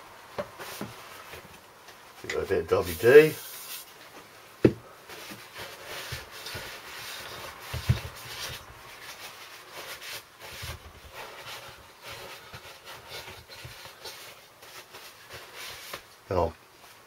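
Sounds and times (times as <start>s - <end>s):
cloth rag rubbing metal: 2.7s - 3.9s.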